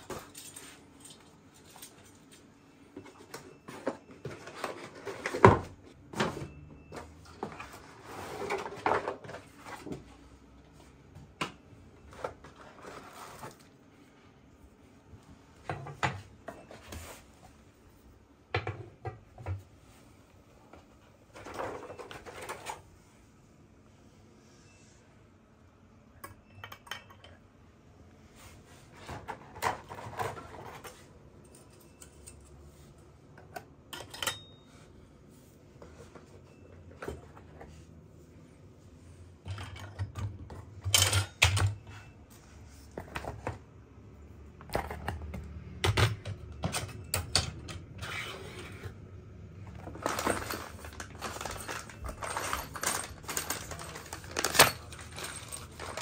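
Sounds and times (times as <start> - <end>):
metal parts clinking: 49.8 - 56.0.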